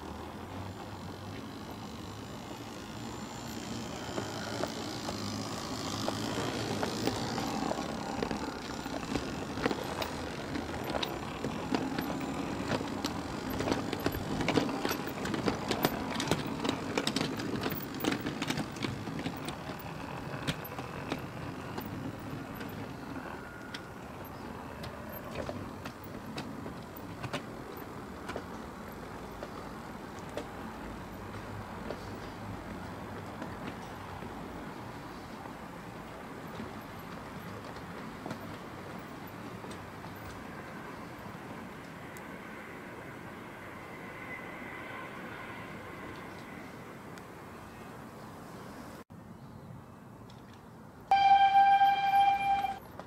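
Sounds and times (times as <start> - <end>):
wheels clicking over rail joints: 0.0 - 47.9, 50.3 - 53.0
train rumble: 0.0 - 48.1, 51.1 - 53.0.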